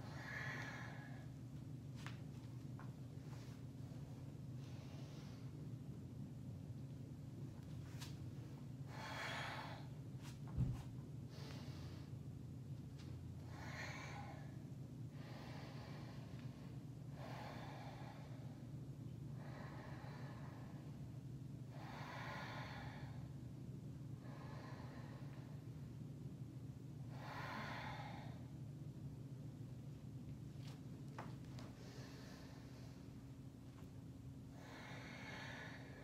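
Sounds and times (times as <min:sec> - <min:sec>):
slow breathing: 0:00.0 - 0:01.4, 0:04.6 - 0:05.6, 0:08.9 - 0:10.0, 0:11.3 - 0:12.3, 0:13.4 - 0:21.0, 0:21.7 - 0:23.4, 0:24.2 - 0:25.8, 0:27.1 - 0:28.6, 0:31.6 - 0:33.6, 0:34.4 - 0:36.0
steady low hum: 0:00.0 - 0:36.0.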